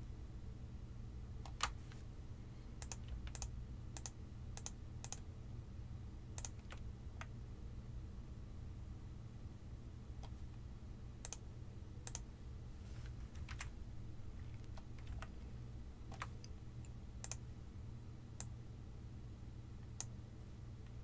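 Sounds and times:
faint low hum: 0.0 - 21.0
mouse and keyboard clicks: 2.8 - 5.2, 6.4 - 7.3, 10.2 - 10.4.

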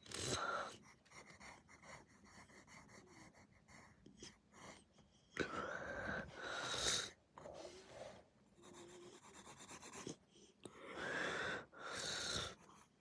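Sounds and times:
pencil scratching on paper: 0.7 - 4.9, 7.5 - 10.3.

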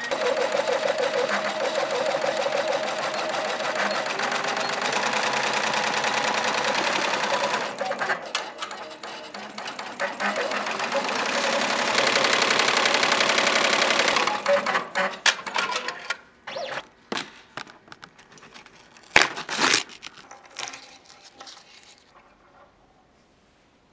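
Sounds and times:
embroidery machine stitching: 0.0 - 15.9
stabilizer backing ripping: 18.6 - 22.2.

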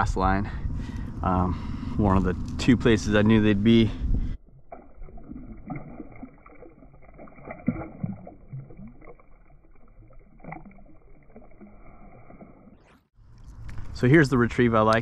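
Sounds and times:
water splashing and sloshing: 4.3 - 13.9.

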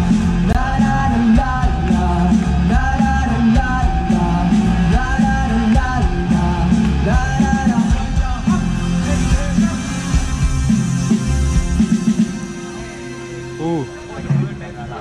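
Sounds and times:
drums: 0.0 - 15.0
electric guitars: 0.0 - 15.0
person singing: 0.4 - 10.0.

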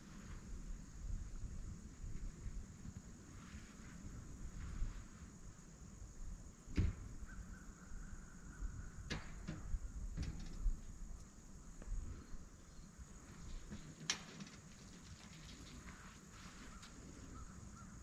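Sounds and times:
sharp clicks and knocks: 9.1 - 11.3, 13.4 - 16.0.

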